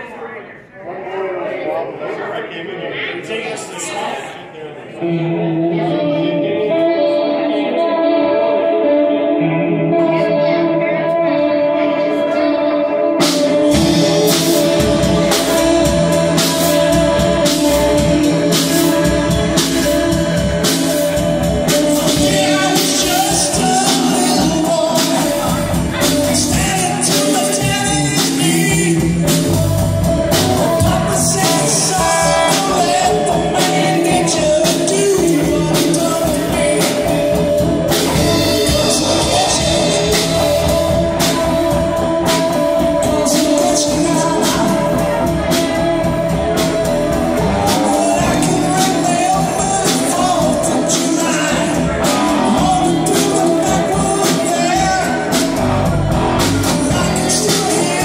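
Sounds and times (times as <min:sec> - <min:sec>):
electric guitar: 0:05.0 - 0:58.0
man singing: 0:05.0 - 0:58.0
electric bass: 0:05.1 - 0:58.0
drum kit beat: 0:13.0 - 0:58.0.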